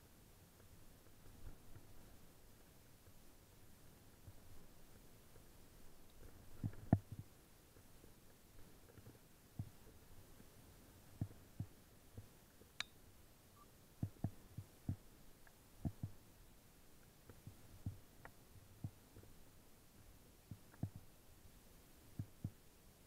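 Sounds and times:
low steady hiss: 0:00.0 - 0:23.0.

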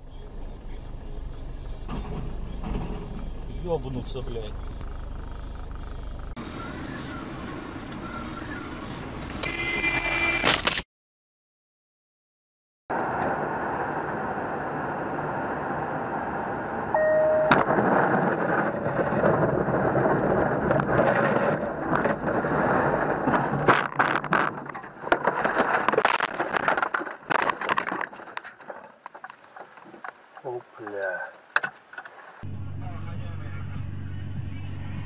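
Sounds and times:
rumbling vehicle noise: 0:00.0 - 0:10.8, 0:12.9 - 0:35.0
short beep: 0:16.9 - 0:17.6.

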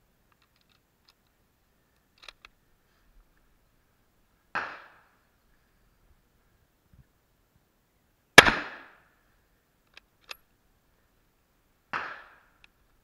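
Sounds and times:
rifle bolt metallic clicks: 0:01.9 - 0:02.6, 0:09.8 - 0:10.5
gunshot with echo: 0:04.6 - 0:05.0, 0:08.4 - 0:09.0, 0:11.9 - 0:12.5.

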